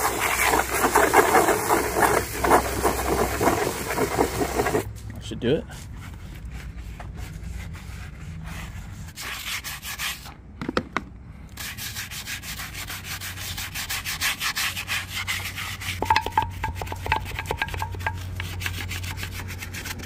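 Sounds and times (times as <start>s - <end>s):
scrubbing tires: 0.0s - 10.4s, 11.5s - 20.0s
low steady hum: 15.8s - 20.0s.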